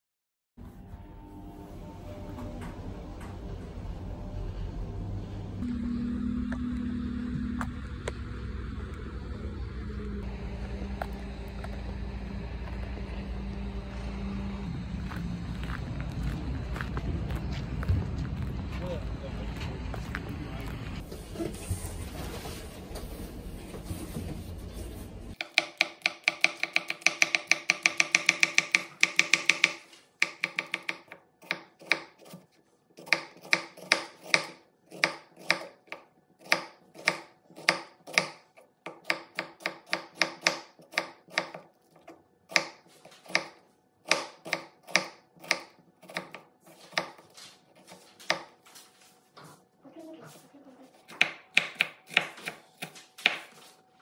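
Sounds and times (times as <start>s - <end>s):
knife chopping on wooden board: 25.4s - 48.5s, 51.1s - 53.6s.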